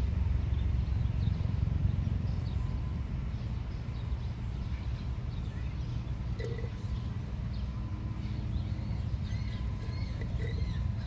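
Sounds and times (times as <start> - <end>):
low outdoor rumble: 0.0 - 11.0
faint bird chirps: 3.8 - 11.0.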